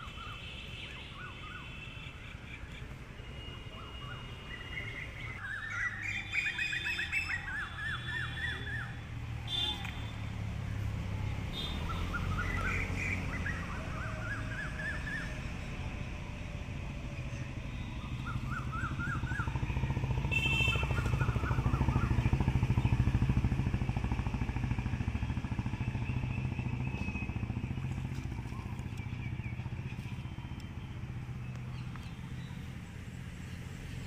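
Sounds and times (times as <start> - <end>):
birds chirping: 0.0 - 16.0, 17.1 - 23.6, 24.8 - 34.0
vehicle engine passing: 8.1 - 34.0.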